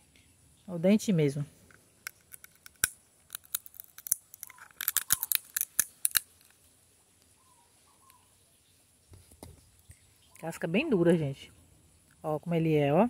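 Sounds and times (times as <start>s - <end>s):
nut cracked with teeth: 2.0s - 6.4s.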